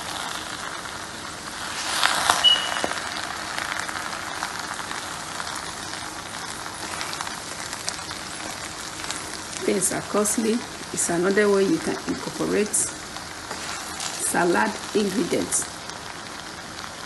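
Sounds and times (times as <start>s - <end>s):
food sizzling in a pot: 0.0s - 17.0s
brief squeak: 2.4s - 3.0s
spatula scraping a pot: 13.5s - 14.2s.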